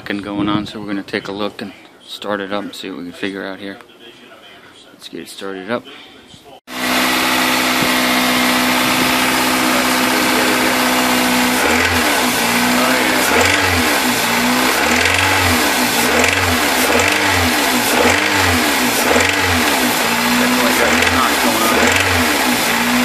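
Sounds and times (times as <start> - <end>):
car engine idling and revving: 6.7 - 23.0.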